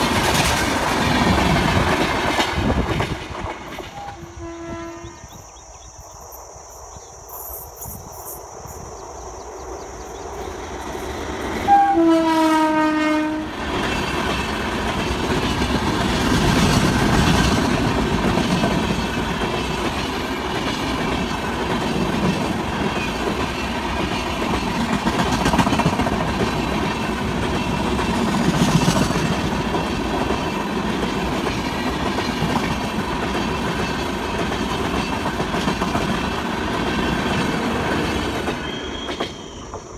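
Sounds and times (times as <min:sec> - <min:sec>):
clickety-clack over rail joints: 0:00.0 - 0:04.8, 0:13.4 - 0:39.9
train wheels rumbling on rail: 0:00.0 - 0:39.9.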